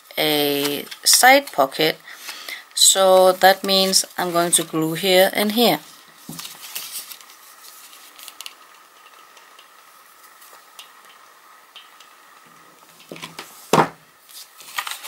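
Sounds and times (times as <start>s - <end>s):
faint steady hum: 0.0s - 15.0s
paper rustling: 3.0s - 4.8s, 6.2s - 9.5s, 13.0s - 15.0s.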